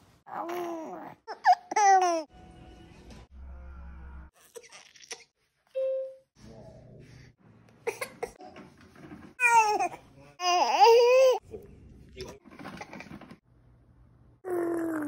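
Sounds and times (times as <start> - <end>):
baby cooing: 0.3 - 2.3
baby laughing: 1.3 - 2.3.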